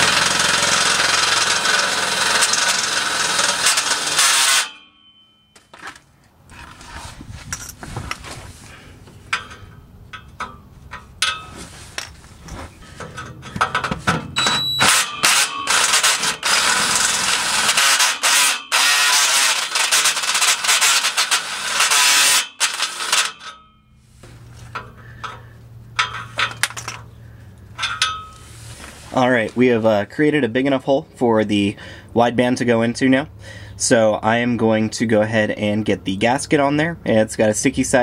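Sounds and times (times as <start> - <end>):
drill bit grinding through metal: 0.0 - 4.8, 14.4 - 23.6.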